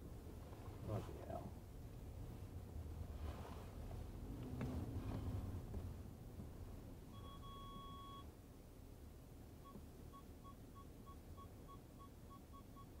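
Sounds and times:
low engine hum: 0:00.0 - 0:12.9
parking sensor beeping: 0:07.1 - 0:08.3, 0:09.6 - 0:13.0.

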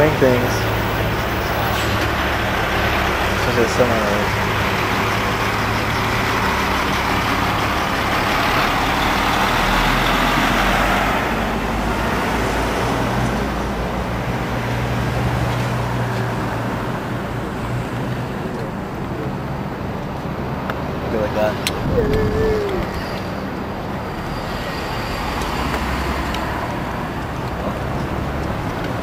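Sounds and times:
truck driving past: 0:00.0 - 0:22.0
road traffic: 0:00.0 - 0:29.0.

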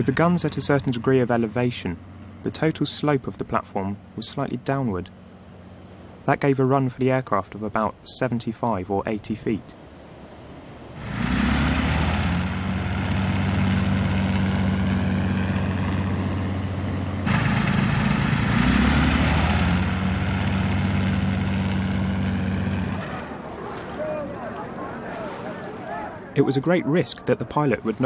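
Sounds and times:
propeller aircraft engine drone: 0:00.0 - 0:06.3, 0:09.8 - 0:25.4.

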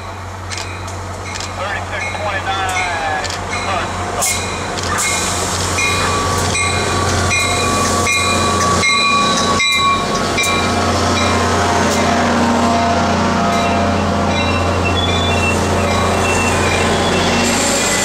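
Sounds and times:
train bell ringing: 0:00.0 - 0:05.2, 0:05.8 - 0:11.5, 0:13.5 - 0:18.0
locomotive engine humming: 0:00.0 - 0:18.0.

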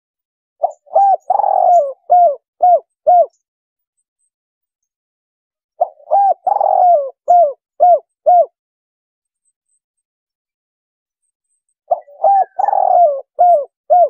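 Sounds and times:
dove cooing: 0:00.6 - 0:03.4, 0:05.8 - 0:08.6, 0:11.9 - 0:14.0.

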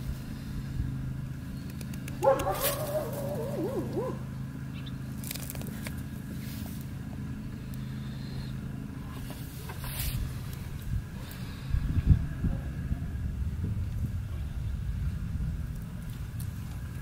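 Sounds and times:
steady low hum: 0:00.0 - 0:17.0
wavering whining call: 0:02.2 - 0:05.0.

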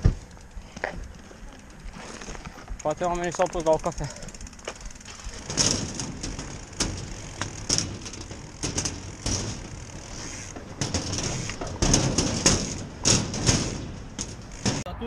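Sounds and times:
bike tyre rumble: 0:00.0 - 0:15.0
knocks and rattles from deck: 0:05.1 - 0:14.9.

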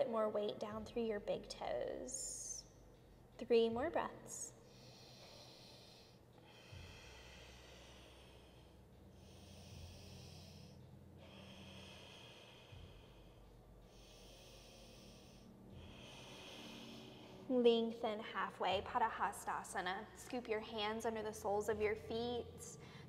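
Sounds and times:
slow hissing breathing: 0:04.5 - 0:17.5.

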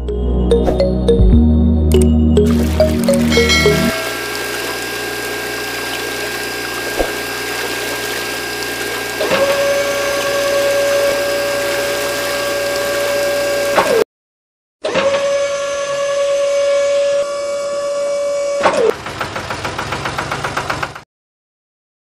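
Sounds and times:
water churning in mud: 0:02.4 - 0:14.0
steady motor whine: 0:03.9 - 0:14.0
small electric motors running: 0:04.0 - 0:14.0.

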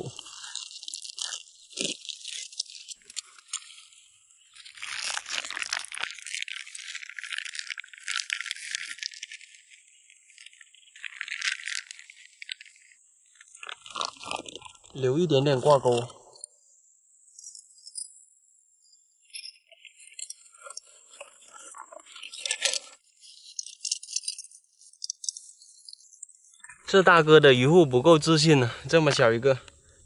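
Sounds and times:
plastic bag crinkling: 0:00.0 - 0:15.0, 0:20.5 - 0:24.0.

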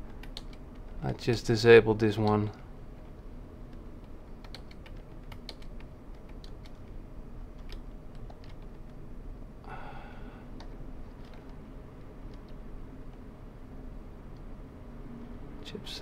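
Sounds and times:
computer keyboard keypresses: 0:00.1 - 0:01.0, 0:04.0 - 0:07.0, 0:07.6 - 0:09.0.

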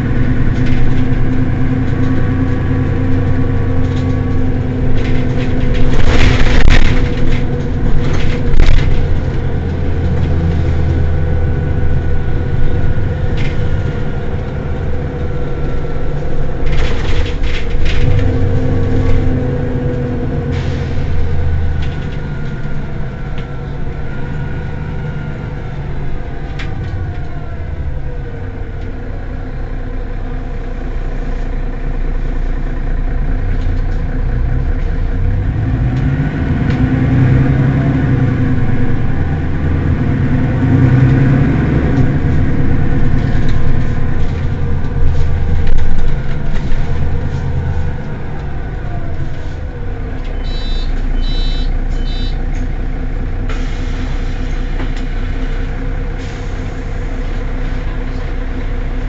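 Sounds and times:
bus engine idling: 0:00.0 - 0:59.0.

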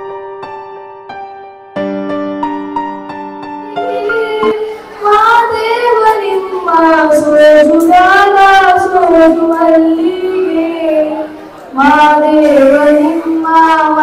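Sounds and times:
high voice singing: 0:03.7 - 0:14.0.

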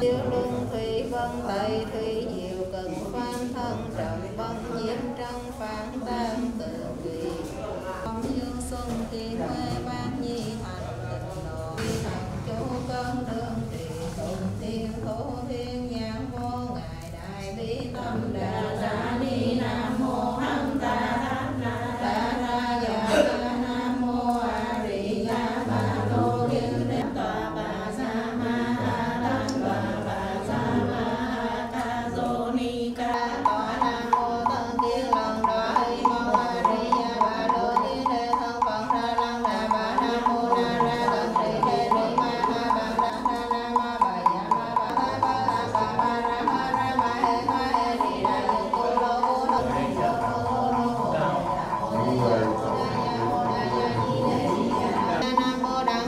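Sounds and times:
fast percussion tapping: 0:33.0 - 0:56.0
chanted melodic music: 0:45.5 - 0:56.0.

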